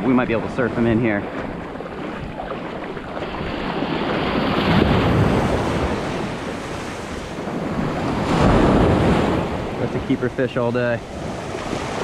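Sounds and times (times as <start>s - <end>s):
ocean waves breaking: 0.0s - 12.0s.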